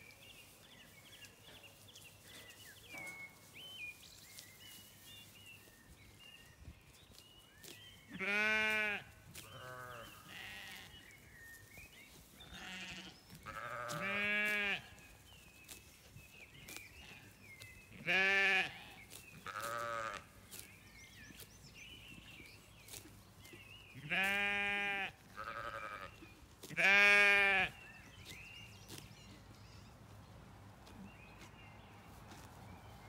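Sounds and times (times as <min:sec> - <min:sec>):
sheep bleating: 0:08.1 - 0:10.9, 0:12.4 - 0:14.9, 0:18.0 - 0:20.2, 0:24.0 - 0:26.1, 0:26.7 - 0:27.7.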